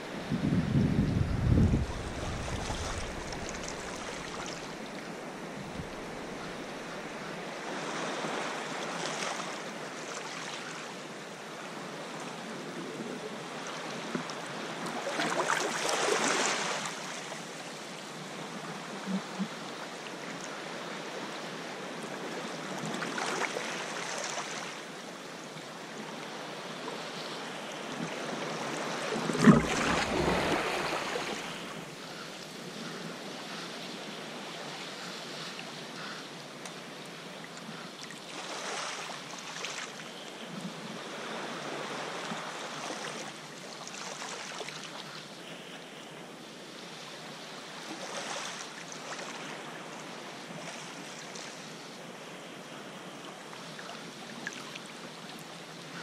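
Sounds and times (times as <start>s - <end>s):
surf washing against rocks: 0.3s - 7.2s, 28.6s - 32.0s
water sloshing and lapping: 1.2s - 7.2s, 28.0s - 31.9s.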